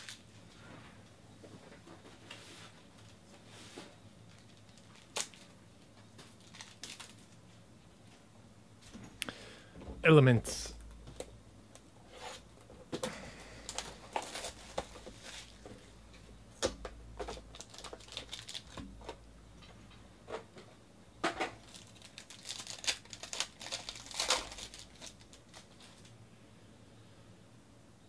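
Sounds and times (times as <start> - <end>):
foil wrapper crinkling: 4.3 - 5.6, 6.2 - 7.4, 13.7 - 15.7, 17.3 - 19.2, 21.6 - 26.1.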